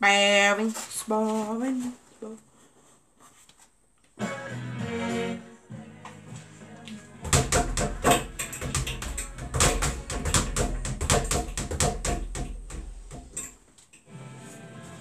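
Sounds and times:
speed bag rattling hits: 0:07.3 - 0:13.6.

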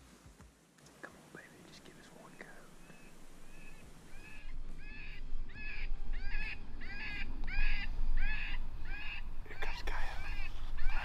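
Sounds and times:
harsh cawing calls: 0:03.5 - 0:09.3, 0:09.9 - 0:11.0.

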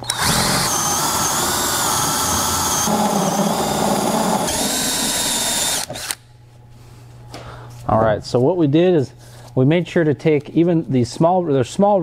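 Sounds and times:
cordless drill cutting plastic: 0:00.0 - 0:06.2.

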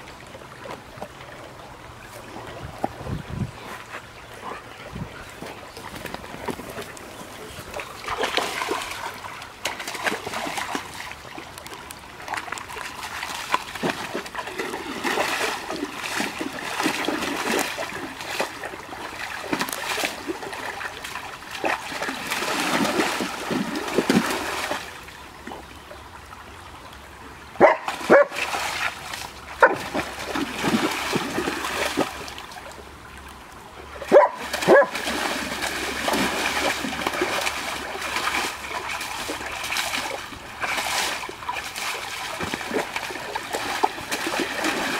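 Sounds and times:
dog splashing in water: 0:05.4 - 0:25.0, 0:27.6 - 0:32.8, 0:34.0 - 0:44.9
dog barking: 0:27.6 - 0:28.4, 0:29.6 - 0:29.8, 0:34.1 - 0:34.9.

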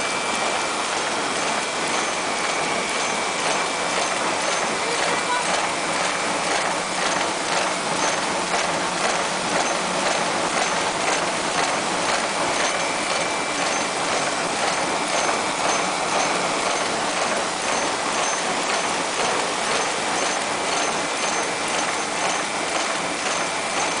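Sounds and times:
forming machine clattering: 0:00.0 - 0:24.0.

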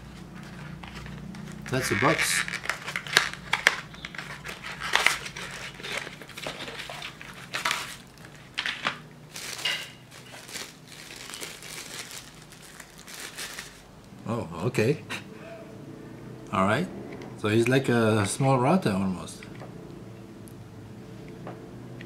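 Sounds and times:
cardboard packaging handled: 0:00.0 - 0:13.9
plastic bag crinkling: 0:00.1 - 0:14.1.

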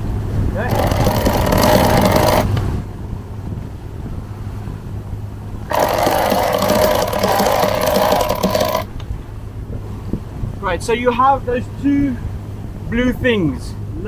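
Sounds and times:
winch ratcheting: 0:00.6 - 0:02.6, 0:05.7 - 0:08.9.

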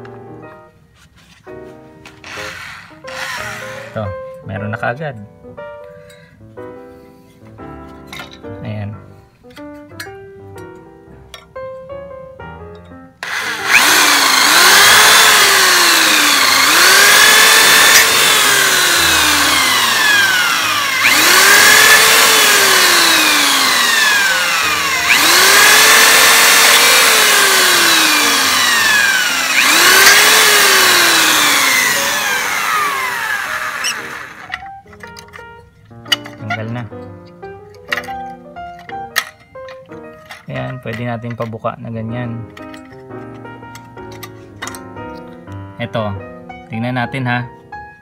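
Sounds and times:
electric drill boring into sheet metal: 0:02.2 - 0:04.1, 0:13.2 - 0:34.7.

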